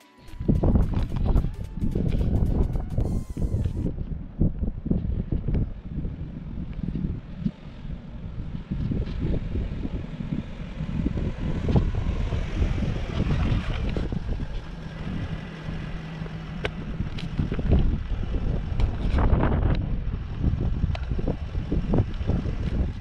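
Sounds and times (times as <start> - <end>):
wind buffeting microphone: 0.3 - 23.0
car passing by: 7.0 - 19.4.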